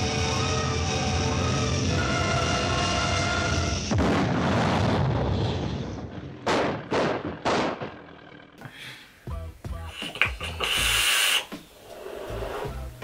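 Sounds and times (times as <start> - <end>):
backing music: 0.0 - 3.9, 9.2 - 13.0
loud blast of noise: 0.1 - 8.0.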